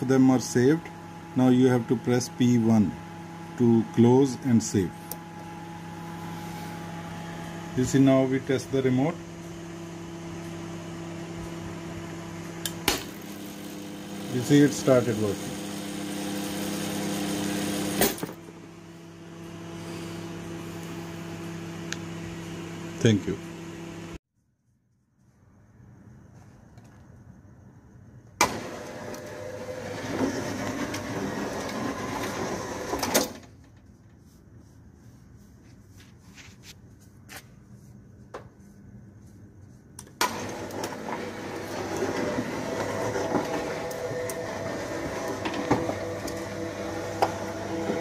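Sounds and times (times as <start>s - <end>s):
roller shutter motor running: 12.4s - 18.7s, 28.4s - 33.8s, 40.2s - 48.0s.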